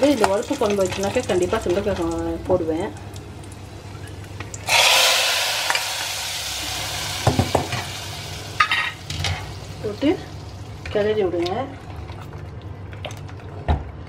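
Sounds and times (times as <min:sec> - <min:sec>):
loud sizzle of hot oil: 0:00.0 - 0:11.0
berries frying in oil: 0:00.0 - 0:12.8.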